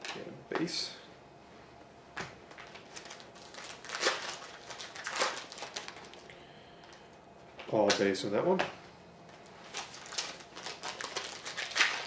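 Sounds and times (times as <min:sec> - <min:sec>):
foil wrapper crinkling: 0:02.6 - 0:06.3, 0:09.4 - 0:12.0
cards rustling and clicking: 0:09.3 - 0:12.0.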